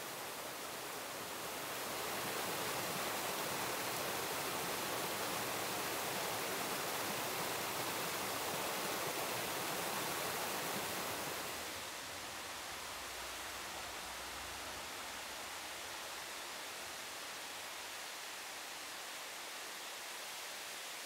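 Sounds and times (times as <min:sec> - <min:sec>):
rushing mountain stream: 0:00.0 - 0:21.0.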